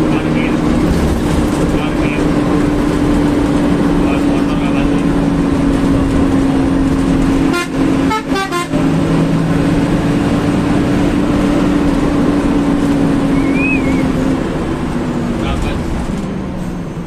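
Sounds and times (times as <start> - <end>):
bus engine and road drone: 0.0 - 17.0
short horn toots: 7.5 - 8.8.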